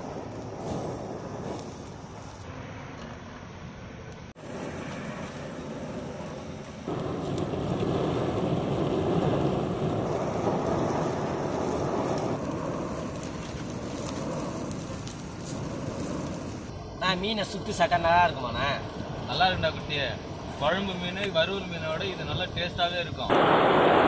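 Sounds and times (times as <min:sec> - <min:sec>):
forge blower rushing air and fire: 0:00.0 - 0:02.8, 0:03.4 - 0:24.0.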